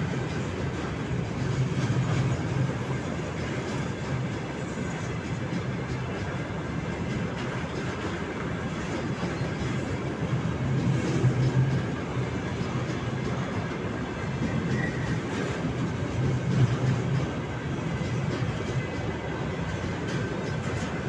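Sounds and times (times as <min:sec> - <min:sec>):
freight train rolling past: 0:00.0 - 0:21.0.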